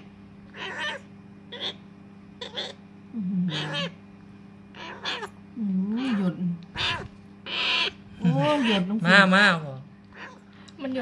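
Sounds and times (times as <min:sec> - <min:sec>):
parrot chick begging calls: 0:00.6 - 0:01.8, 0:02.4 - 0:02.8, 0:06.8 - 0:08.8.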